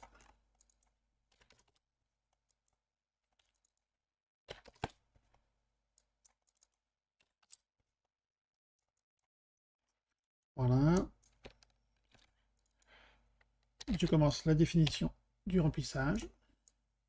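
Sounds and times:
keyboard and mouse clicks: 0:06.0 - 0:07.7, 0:10.8 - 0:15.2.

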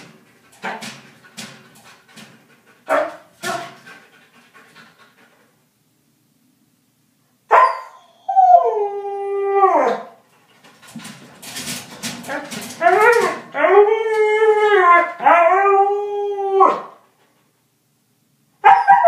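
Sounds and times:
dog yelp: 0:07.5 - 0:08.7, 0:18.6 - 0:19.0
dog howling: 0:07.6 - 0:10.2, 0:12.8 - 0:17.0.

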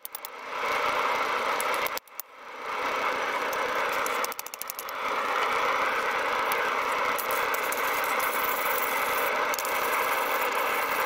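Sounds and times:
machine hum with whine: 0:00.0 - 0:11.0
wire brush scrubbing steel plate: 0:07.2 - 0:11.0.

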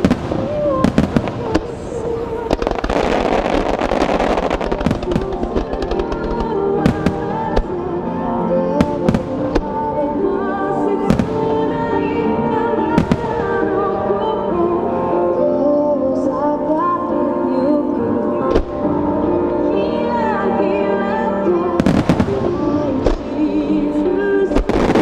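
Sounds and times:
fireworks crackling hiss: 0:00.0 - 0:07.5
fireworks bursting with bangs: 0:00.0 - 0:08.0, 0:08.6 - 0:09.9, 0:12.9 - 0:13.8, 0:21.8 - 0:25.0
music: 0:00.0 - 0:25.0.

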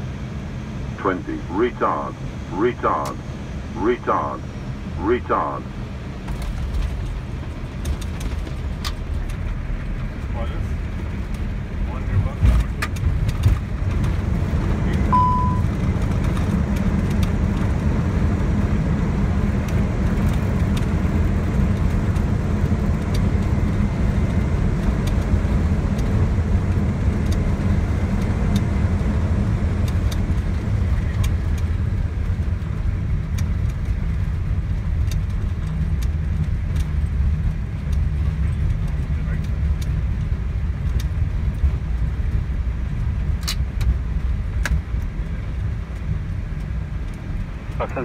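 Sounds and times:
aircraft cockpit rumble: 0:00.0 - 0:48.0
short beep: 0:15.1 - 0:15.7.

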